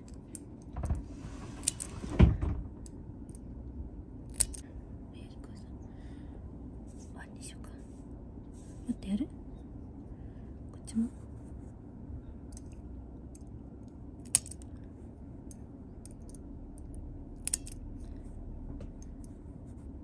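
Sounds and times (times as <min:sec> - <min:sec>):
nail clippers snipping claws: 0:04.3 - 0:04.6, 0:14.2 - 0:14.6, 0:17.4 - 0:17.8.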